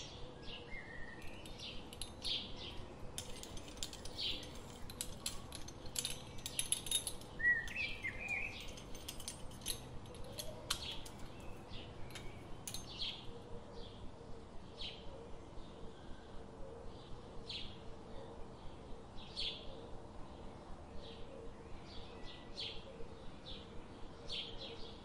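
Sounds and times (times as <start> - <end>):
birds chirping: 0.7 - 13.3.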